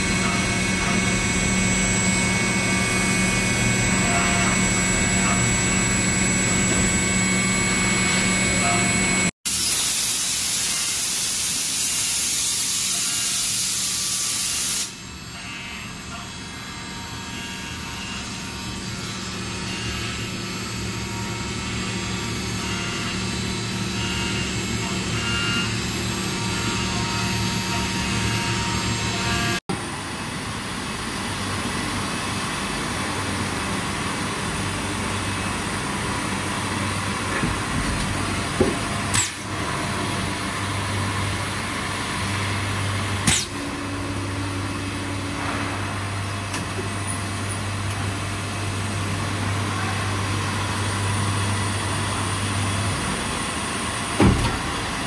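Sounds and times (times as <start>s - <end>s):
milling machine humming and whining: 0.0s - 9.8s, 10.4s - 55.0s
air blow gun hissing: 9.5s - 15.0s.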